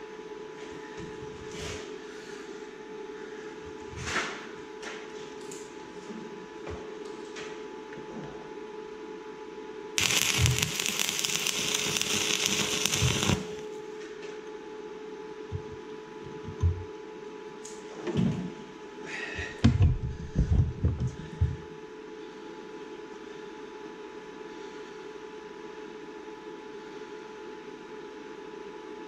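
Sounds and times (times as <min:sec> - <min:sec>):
arc welding crackling hiss: 0:10.0 - 0:13.7
steady hum: 0:10.0 - 0:13.8.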